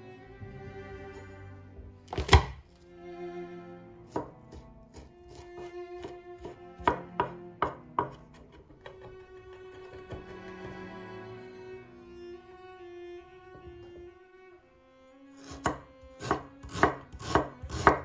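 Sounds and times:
soft string music: 0.0 - 18.0
knife chopping on wooden board: 2.1 - 2.6, 4.1 - 10.8, 15.4 - 18.0
loud knock on cutting board: 6.8 - 8.2.

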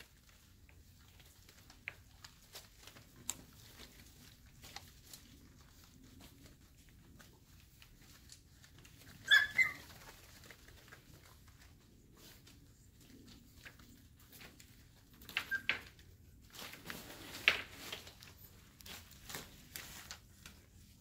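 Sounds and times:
paws scratching on floor: 0.0 - 21.0
puppy yelping: 9.0 - 10.4, 15.3 - 15.9.

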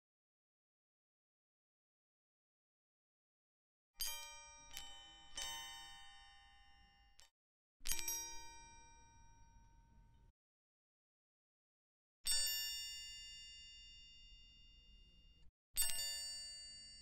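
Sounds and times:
music: 4.0 - 10.3, 12.2 - 17.0.

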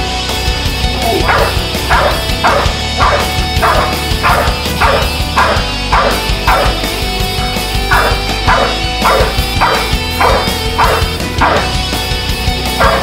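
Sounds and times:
background music with steady beat: 0.0 - 13.0
dog barking rapidly: 1.0 - 6.9, 7.9 - 11.8, 12.8 - 13.0.

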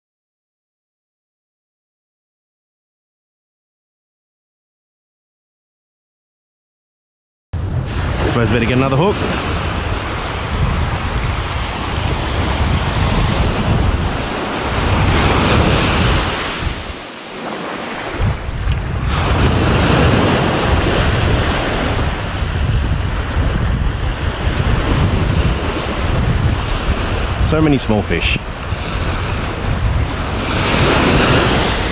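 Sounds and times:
small waves washing onto beach: 7.6 - 31.9
wind buffeting microphone: 7.6 - 31.9.

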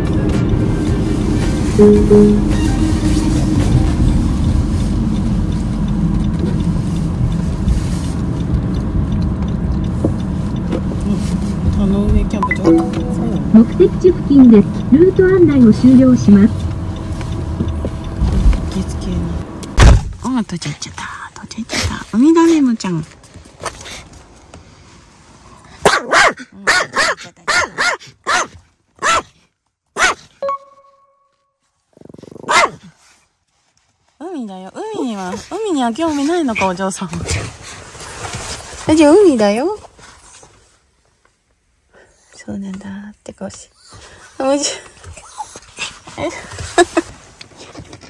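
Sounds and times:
car cabin road rumble: 0.0 - 12.4, 13.0 - 23.6
small dog barking: 25.8 - 29.4, 30.0 - 30.3, 32.5 - 32.9.

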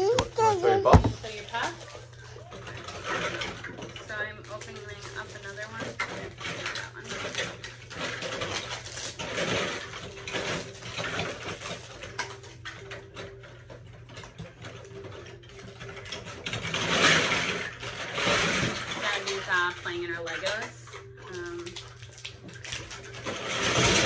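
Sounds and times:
plastic packaging crinkling: 4.5 - 12.7, 20.4 - 24.0.

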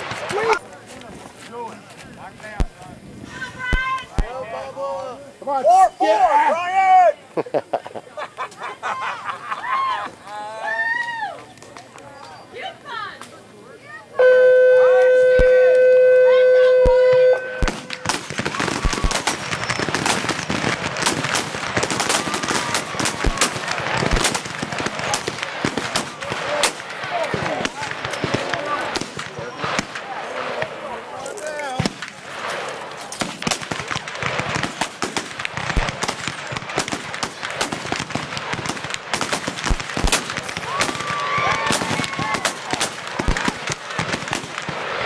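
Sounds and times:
muskets firing: 0.0 - 0.6, 15.3 - 15.7, 16.6 - 45.0.

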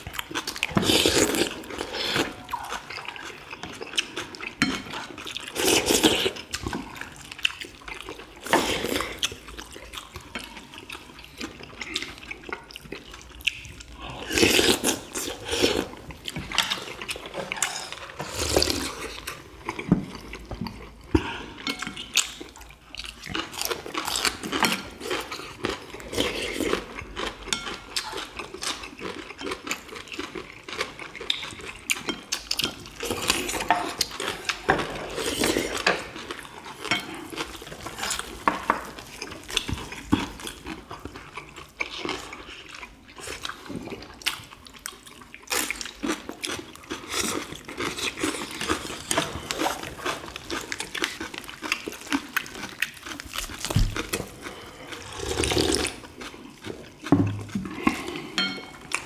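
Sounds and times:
chewing food: 0.0 - 59.0
slurping broth: 54.3 - 56.0.

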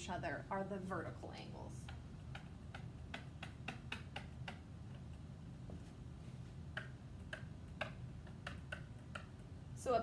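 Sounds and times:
pen tapping on whiteboard: 1.8 - 5.8, 6.7 - 9.5.

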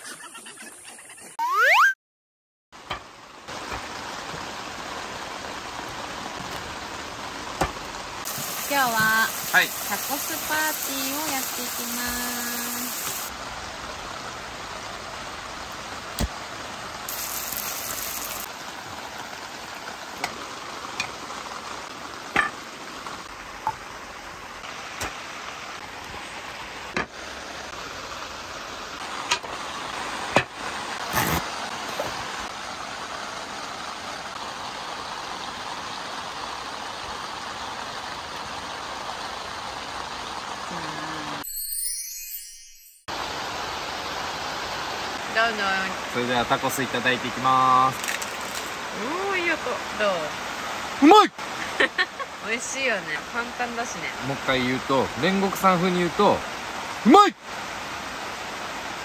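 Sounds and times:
food sizzling in a pan: 7.6 - 13.3, 17.1 - 18.7.

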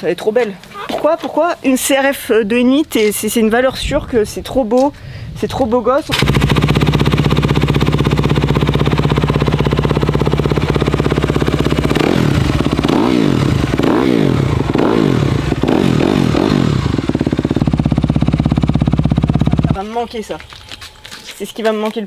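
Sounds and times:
dirt bike engine revving: 6.1 - 20.0
dirt bike engine idling: 6.1 - 20.6.

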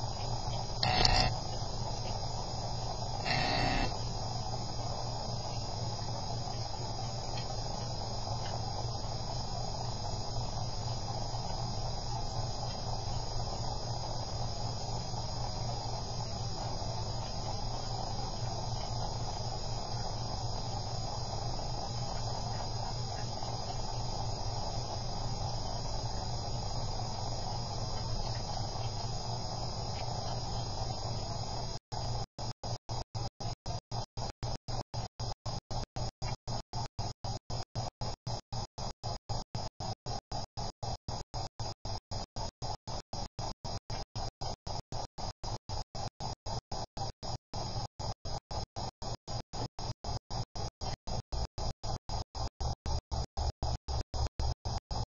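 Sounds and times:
thin high whine: 0.0 - 32.1
electronic hiss and low hum: 0.0 - 55.0.

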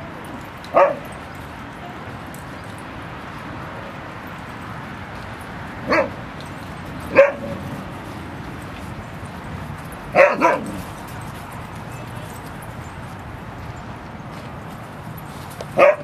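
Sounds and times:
dog barking: 0.7 - 1.2, 5.8 - 6.2, 7.1 - 7.6, 10.1 - 10.8, 15.8 - 16.0.

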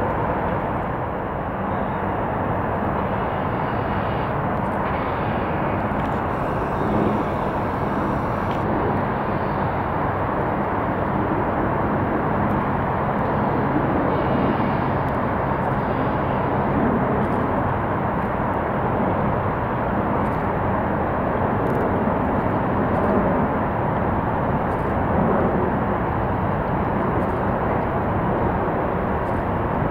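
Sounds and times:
jet engines idling: 0.5 - 11.5.

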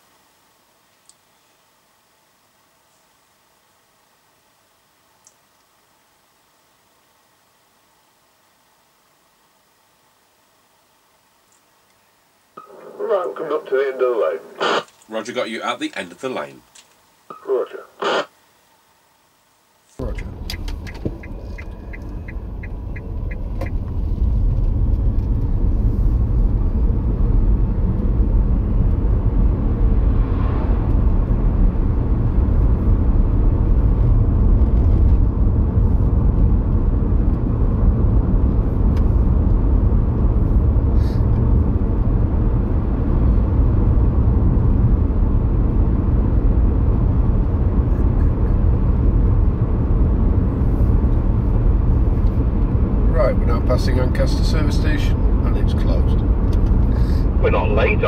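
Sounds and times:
road and engine noise inside car: 20.0 - 58.0.

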